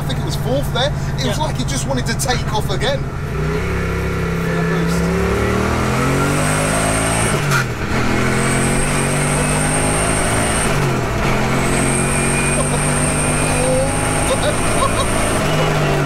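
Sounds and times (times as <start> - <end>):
car engine accelerating: 0.0 - 16.0
high turbo whistle: 11.6 - 13.9.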